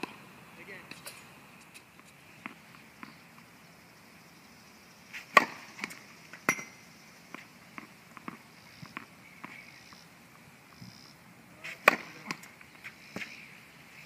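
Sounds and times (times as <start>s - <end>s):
tennis racket hitting ball: 5.2s - 6.7s, 11.6s - 12.5s.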